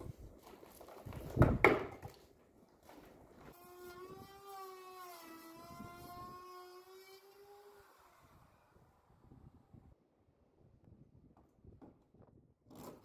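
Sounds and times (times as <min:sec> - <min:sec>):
power tool motor whining: 0:03.5 - 0:09.2.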